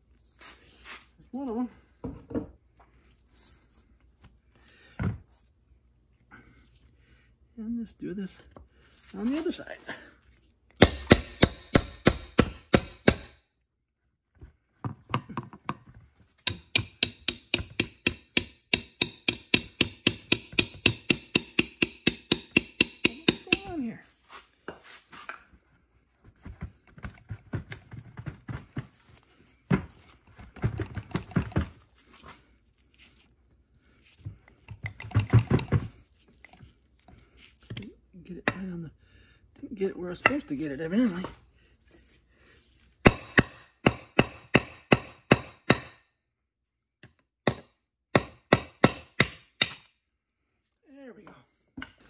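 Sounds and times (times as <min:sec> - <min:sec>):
hammer striking steel punch: 0:10.8 - 0:13.4, 0:16.5 - 0:23.7, 0:43.1 - 0:46.0.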